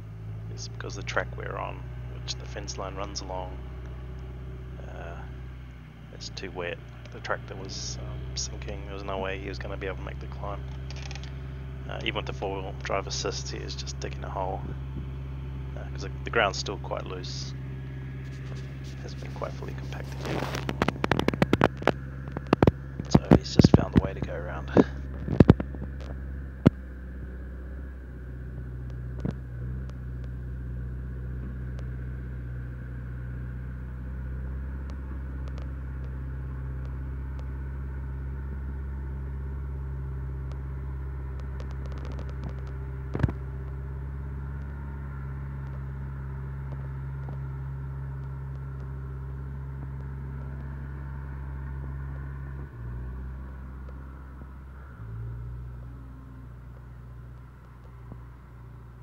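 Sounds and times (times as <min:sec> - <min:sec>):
vehicle engine idling: 0:00.0 - 0:59.0
sharp click: 0:10.8 - 0:11.3.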